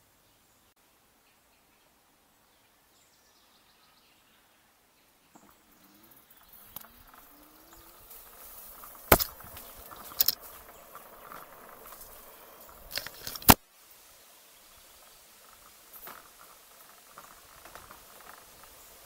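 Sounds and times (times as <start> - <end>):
rolling tyre hiss: 5.7 - 19.0
bike knocks and rattles: 6.6 - 13.6, 15.4 - 19.0.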